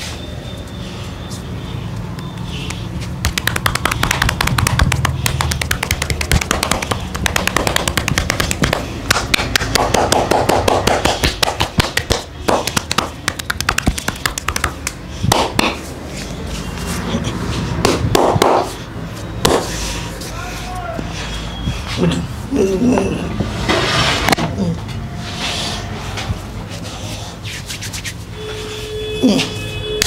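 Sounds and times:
hands tapping on arm: 2.3 - 15.8.

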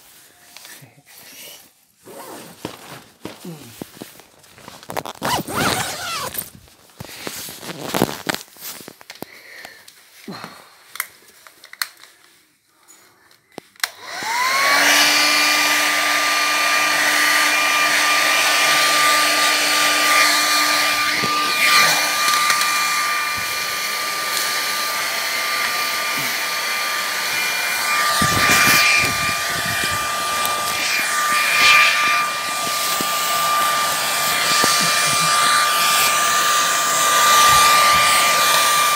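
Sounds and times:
handling and fabric rustles: 0.0 - 9.2
air dryer motor whine: 13.8 - 38.9.

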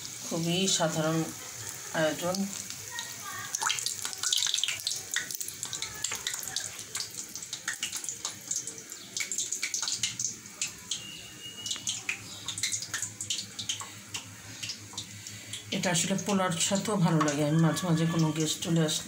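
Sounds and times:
food sizzling in hot oil: 0.0 - 19.0.

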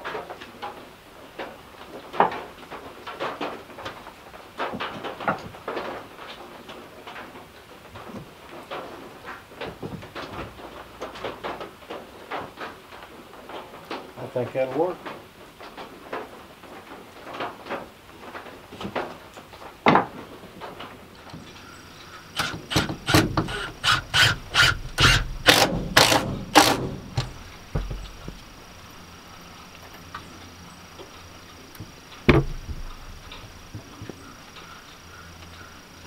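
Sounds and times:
hammer striking wood: 22.4 - 28.4, 32.3 - 33.0.

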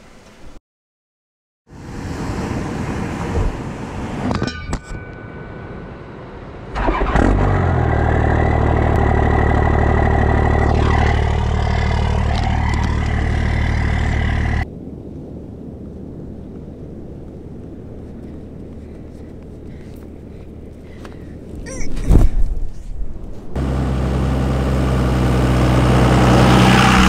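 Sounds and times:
truck engine running: 6.8 - 14.6, 23.6 - 27.0.

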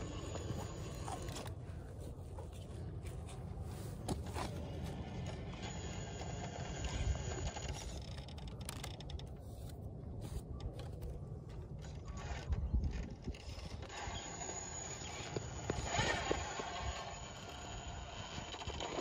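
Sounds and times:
clicks and scrapes on rock: 0.0 - 1.6
toy car motor and gears whirring: 0.0 - 1.6, 4.1 - 9.4, 11.7 - 19.0.

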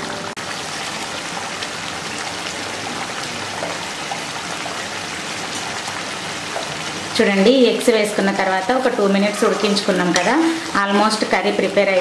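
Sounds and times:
gravy bubbling and sizzling: 0.0 - 12.0.

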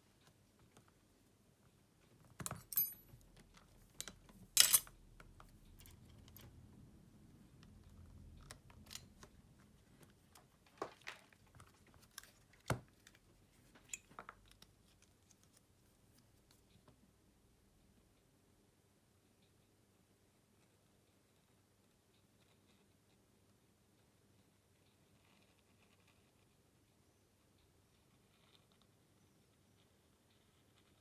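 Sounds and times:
tools clicking and tapping: 2.2 - 6.5, 13.8 - 14.7.

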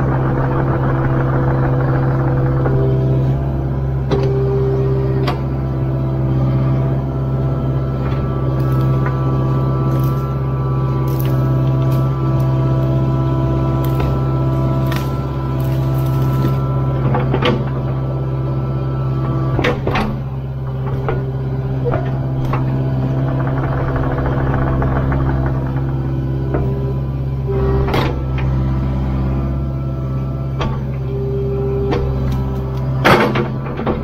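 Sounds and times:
excavator diesel engine running: 0.0 - 34.0
sharp knocks and cracks of wood: 13.8 - 17.6.

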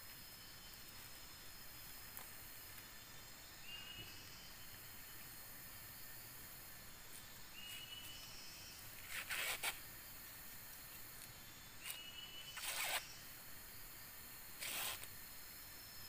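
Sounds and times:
corn husks tearing: 9.1 - 9.8.

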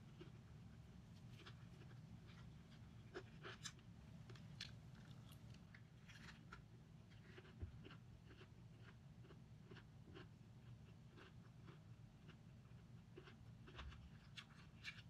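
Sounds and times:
low steady hum: 0.0 - 15.0
chewing crunchy food: 1.2 - 15.0.

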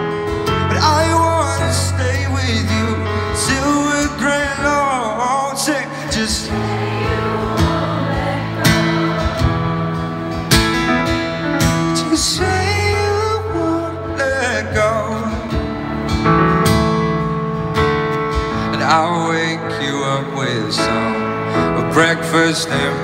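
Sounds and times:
acoustic guitars strumming: 0.0 - 23.0
man singing: 0.6 - 7.3, 11.8 - 15.8, 18.6 - 23.0.

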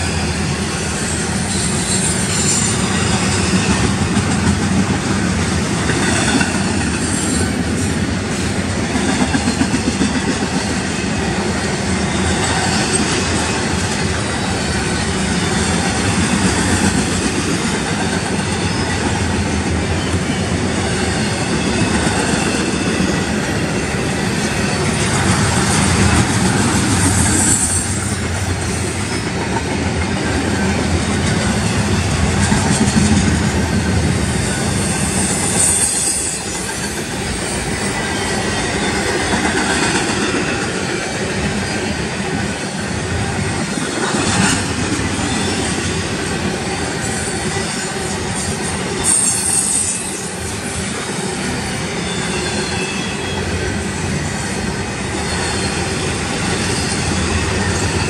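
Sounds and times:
train wheels rumbling on rails: 0.0 - 58.0
high-pitched wheel squeals: 34.4 - 39.7, 47.0 - 50.6, 51.6 - 53.6.

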